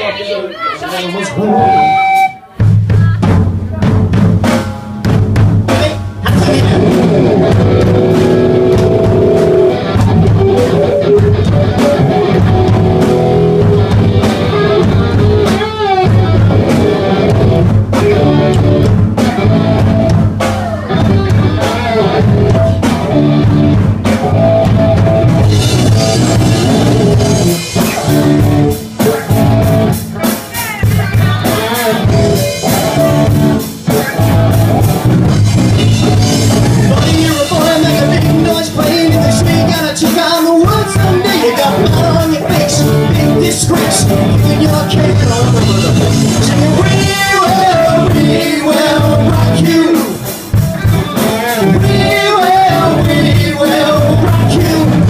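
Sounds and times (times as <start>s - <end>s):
drum kit beat: 1.4s - 55.0s
electric guitar: 1.4s - 55.0s.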